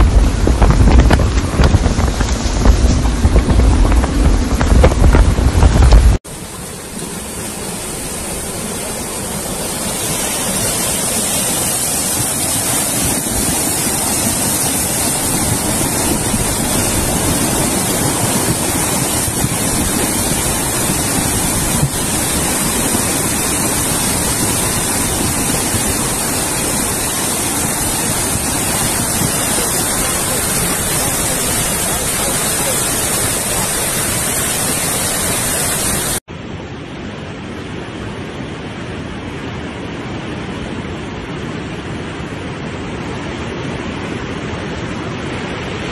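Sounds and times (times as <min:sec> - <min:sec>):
flood water rushing over rocks: 0:00.0 - 0:36.3.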